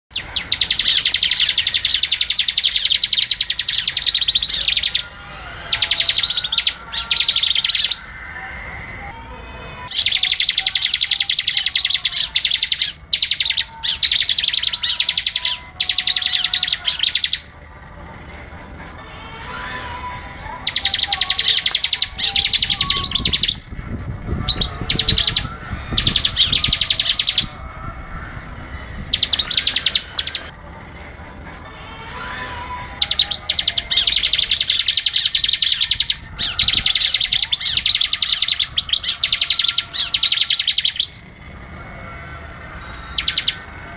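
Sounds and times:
bird singing rapid trills: 0:00.1 - 0:08.1, 0:09.8 - 0:17.5, 0:20.6 - 0:23.7, 0:24.4 - 0:27.7, 0:29.1 - 0:30.5, 0:32.9 - 0:41.2, 0:43.0 - 0:43.7.

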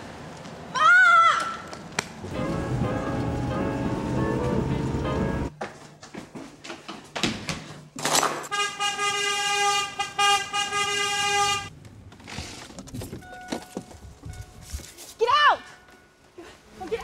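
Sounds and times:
horn steady note: 0:08.5 - 0:11.7.

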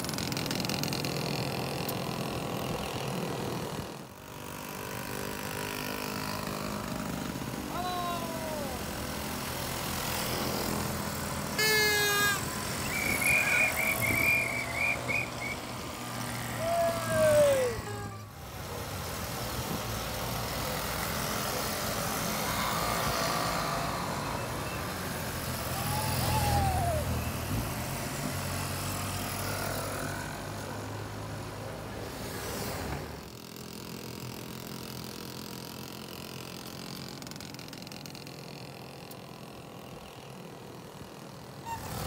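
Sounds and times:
moped engines passing: 0:00.0 - 0:42.0
warbling toot: 0:11.6 - 0:15.6
shrill whistle blast: 0:11.6 - 0:15.7
brief calls: 0:11.6 - 0:15.8.

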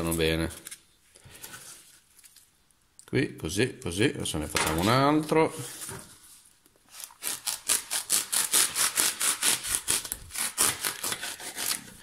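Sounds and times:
knife sawing through foam: 0:07.2 - 0:12.0.

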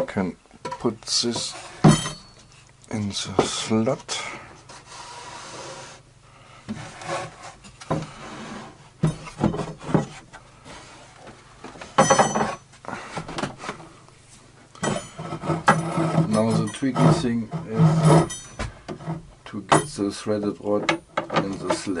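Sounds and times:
plywood rubbing and scraping: 0:04.6 - 0:06.0, 0:06.7 - 0:13.9, 0:14.9 - 0:19.3
squeaky scrape: 0:15.0 - 0:19.2.

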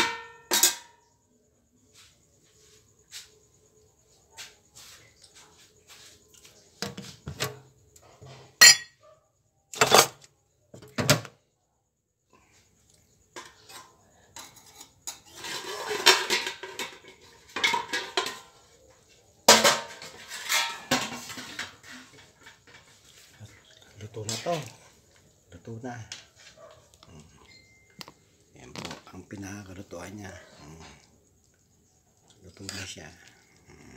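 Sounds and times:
metal spatula clanking on wok: 0:00.0 - 0:00.9, 0:08.6 - 0:08.9
scraping and clattering in wok: 0:00.0 - 0:01.1, 0:09.8 - 0:10.2, 0:13.3 - 0:23.6.

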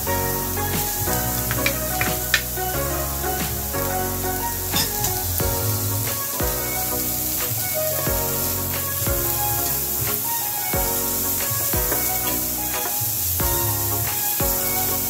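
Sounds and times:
background music with beat: 0:00.0 - 0:15.0
onions sizzling in oil: 0:00.0 - 0:15.0.

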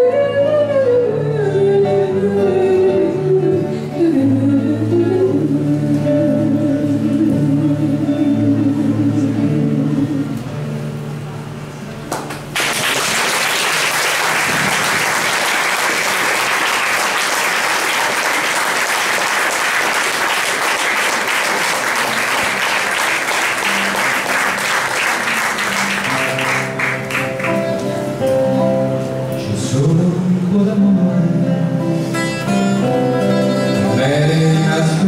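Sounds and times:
audience applauding: 0:12.1 - 0:27.8
plucked guitar music: 0:22.4 - 0:35.0.

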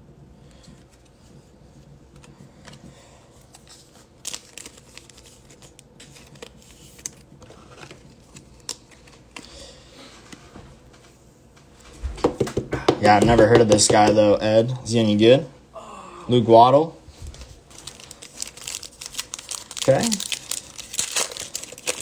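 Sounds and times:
cards rustling and crinkling: 0:00.5 - 0:10.6, 0:17.4 - 0:22.0.

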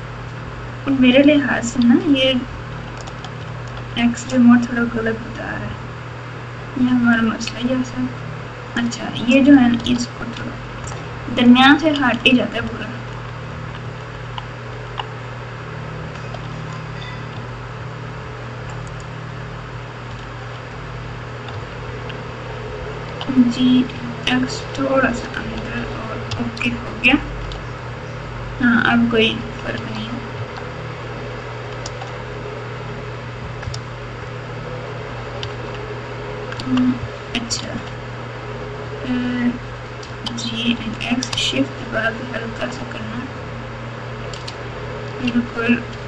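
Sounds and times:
low electrical hum: 0:00.0 - 0:46.0
keyboard keys clicking: 0:44.3 - 0:44.6.

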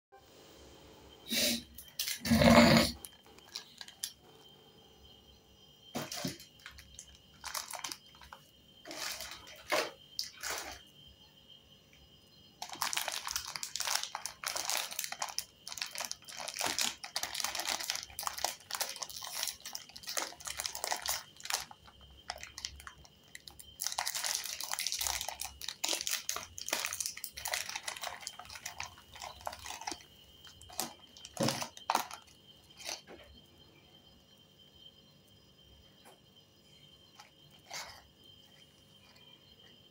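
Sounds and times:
plastic wrappers crinkling: 0:03.1 - 0:04.2, 0:05.9 - 0:10.8, 0:12.6 - 0:33.1
light tapping on plastic wrapper: 0:06.0 - 0:09.7, 0:12.6 - 0:32.3.

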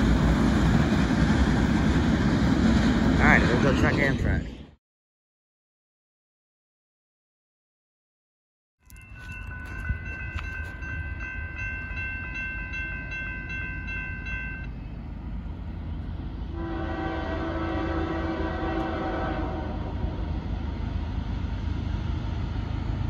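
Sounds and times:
railroad crossing bell ringing: 0:08.8 - 0:15.1
locomotive air horn blowing: 0:16.5 - 0:20.2.

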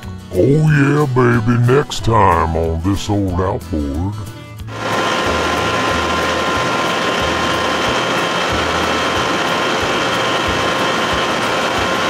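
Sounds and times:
outboard motor running: 0:04.7 - 0:12.0.

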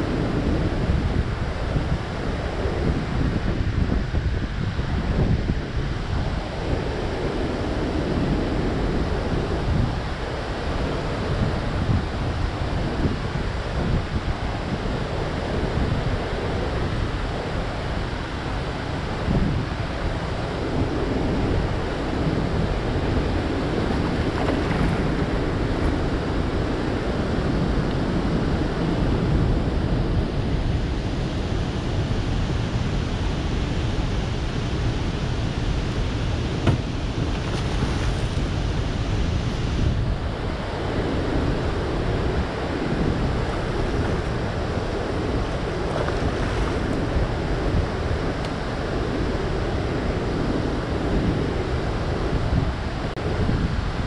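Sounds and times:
wind buffeting microphone: 0:00.0 - 0:54.0
water rushing from spillway: 0:08.7 - 0:28.5, 0:30.8 - 0:54.0.

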